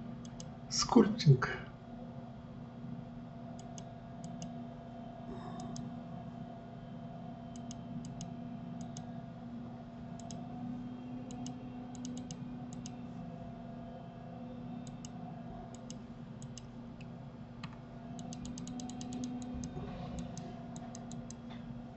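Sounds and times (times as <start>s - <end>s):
steady low hum: 0.0s - 21.9s
computer mouse clicking: 0.2s - 0.5s, 3.6s - 4.6s, 5.6s - 5.9s, 7.5s - 9.1s, 10.2s - 10.5s, 11.3s - 13.0s, 14.8s - 21.4s.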